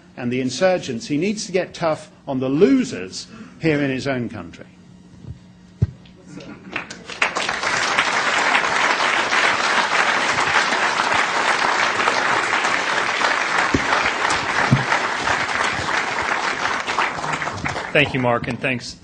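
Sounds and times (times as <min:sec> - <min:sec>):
audience applauding: 0:06.6 - 0:18.7.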